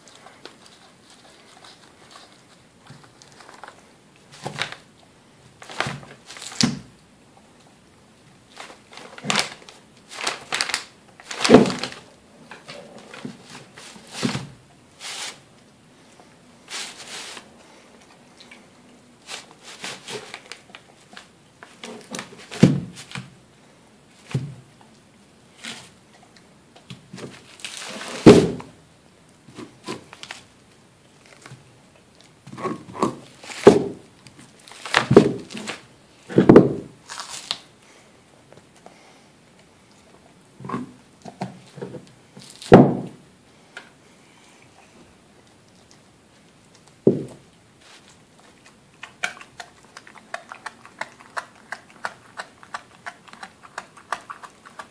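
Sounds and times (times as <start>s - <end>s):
bone knocking against floor: 47.1s - 47.4s
dog gnawing on a bone: 48.4s - 54.9s.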